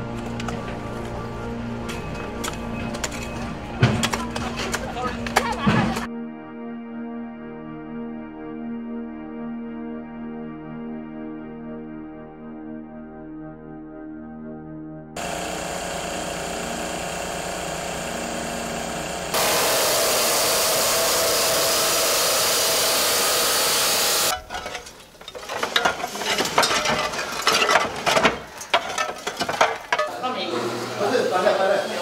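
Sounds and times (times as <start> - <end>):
knocks and clatter of building work: 0.0 - 6.1, 24.3 - 30.3
power tool running: 15.2 - 24.4, 30.2 - 32.0
cut-off disc grinding steel: 15.2 - 31.8.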